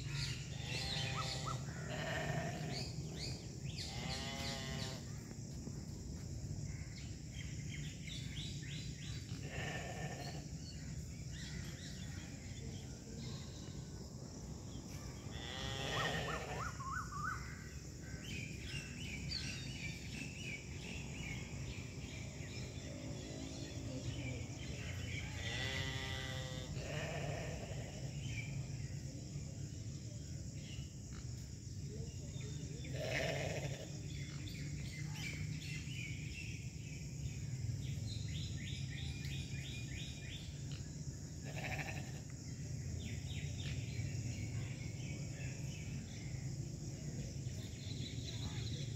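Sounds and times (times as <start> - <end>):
sheep bleating: 0.6 - 2.7, 9.4 - 10.4, 15.3 - 16.6, 41.5 - 42.2.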